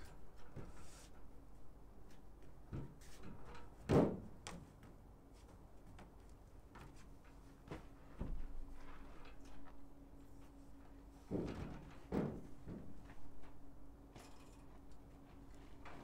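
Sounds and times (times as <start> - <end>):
metal frame knocks and clunks: 11.2 - 14.9.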